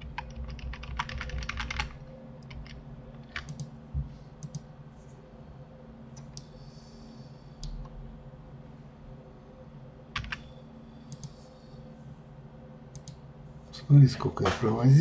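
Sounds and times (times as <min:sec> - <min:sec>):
keyboard and mouse clicks: 0:00.0 - 0:03.7, 0:04.4 - 0:04.6, 0:11.1 - 0:11.4, 0:12.9 - 0:13.2
low electrical hum: 0:00.0 - 0:15.0.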